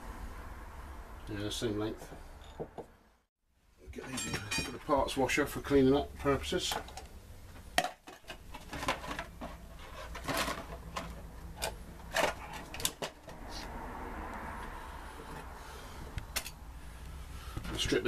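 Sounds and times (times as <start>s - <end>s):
metal parts and tools clinking: 4.0s - 5.0s.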